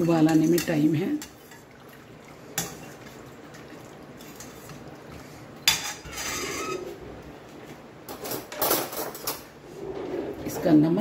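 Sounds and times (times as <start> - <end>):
ladle stirring soup in pot: 0.0 - 6.8
ladle scraping against pot: 4.2 - 7.0.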